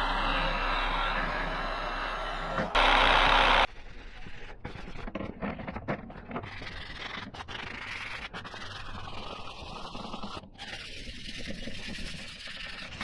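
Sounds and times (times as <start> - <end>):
orbital sander running: 0.0 - 3.7.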